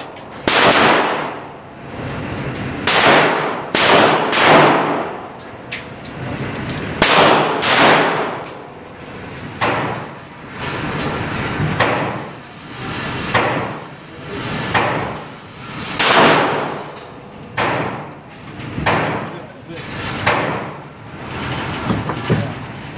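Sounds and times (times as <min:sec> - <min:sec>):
gunshots echoing indoors: 0:00.0 - 0:01.6, 0:02.8 - 0:05.3, 0:07.0 - 0:08.6, 0:16.0 - 0:17.0, 0:17.6 - 0:18.1.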